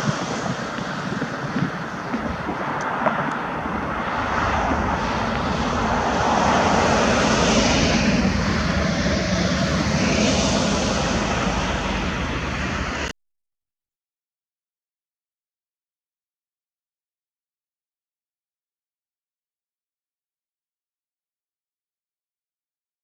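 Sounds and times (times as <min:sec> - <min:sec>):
engine-like rushing drone: 0:00.0 - 0:13.1.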